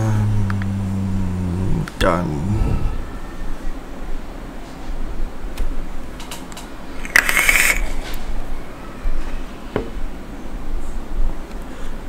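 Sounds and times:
vape hissing draw: 7.0 - 8.0.

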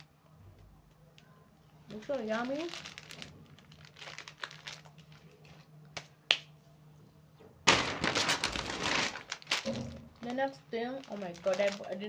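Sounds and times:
paper bag rustling: 1.9 - 5.3, 7.7 - 12.0.

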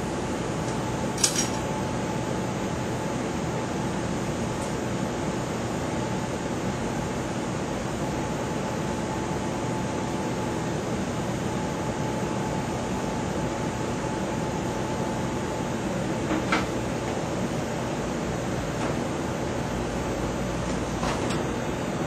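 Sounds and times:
fan rushing noise: 0.0 - 22.0.

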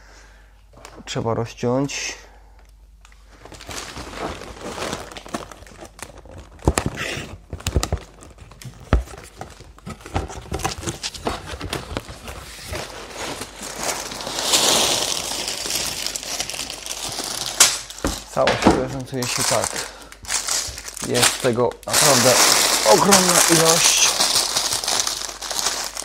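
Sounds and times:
plastic bags of bricks crinkling: 3.3 - 26.0.

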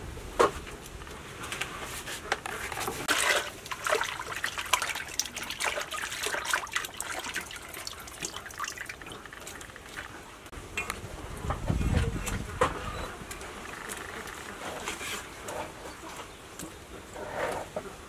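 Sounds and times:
water splashing and sloshing in basin: 2.7 - 10.5, 13.3 - 15.6.

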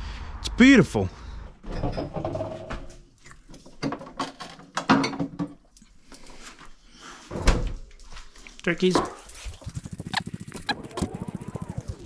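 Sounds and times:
objects knocking and clicking: 3.5 - 5.6.

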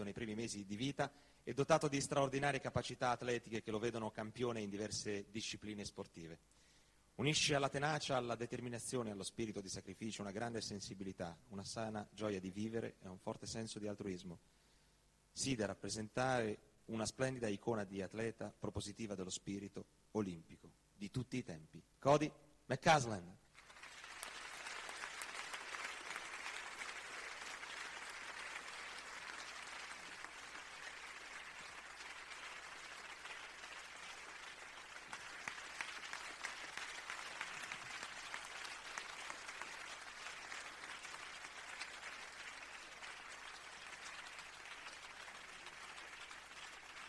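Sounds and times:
audience applauding: 23.5 - 47.0.

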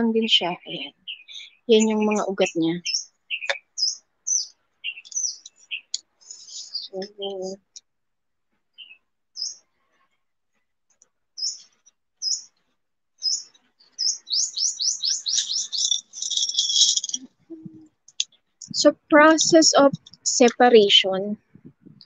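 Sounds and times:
bird chirping and trilling: 0.0 - 7.8, 8.8 - 9.6, 11.4 - 12.6, 13.2 - 20.5.

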